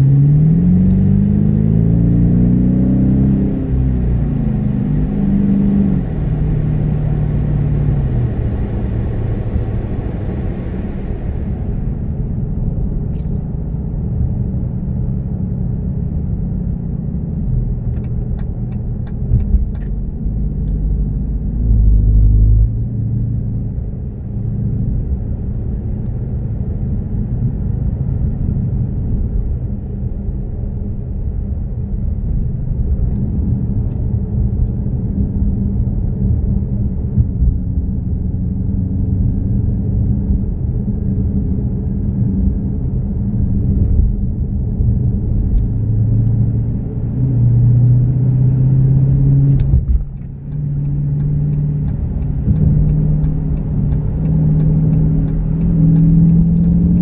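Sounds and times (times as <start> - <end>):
car engine running: 0.0 - 14.2, 40.0 - 57.0
road noise: 0.0 - 57.0
light ticks: 49.5 - 57.0.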